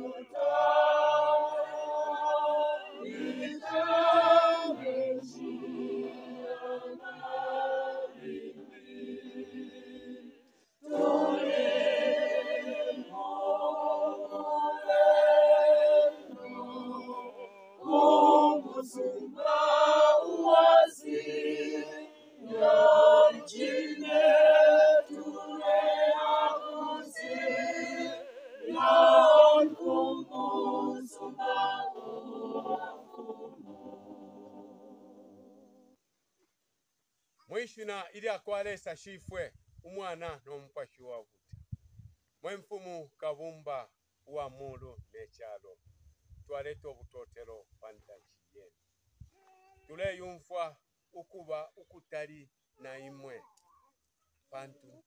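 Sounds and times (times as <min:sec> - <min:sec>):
group singing a hymn: 0:00.0 - 0:35.9.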